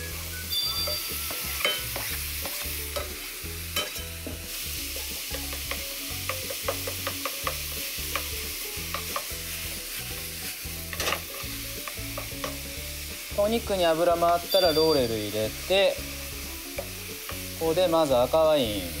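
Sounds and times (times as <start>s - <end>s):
food sizzling in oil: 0.0s - 19.0s
turner scraping and tapping pan: 5.3s - 9.4s, 10.9s - 12.6s.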